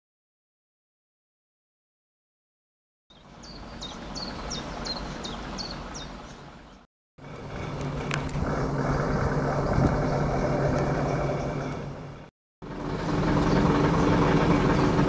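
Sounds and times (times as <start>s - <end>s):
bird chirping: 3.1s - 6.8s
train diesel engine idling: 7.2s - 15.0s.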